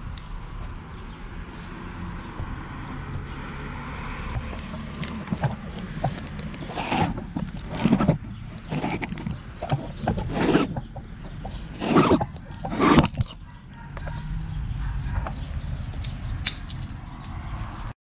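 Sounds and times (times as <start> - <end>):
fingers scraping camera lens cover: 4.3 - 13.6.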